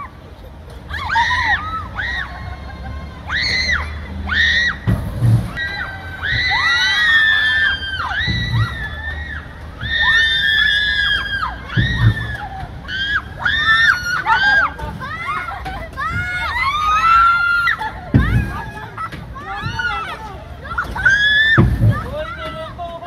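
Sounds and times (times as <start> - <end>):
children screaming: 0.0 - 23.0
low thump: 4.8 - 5.6.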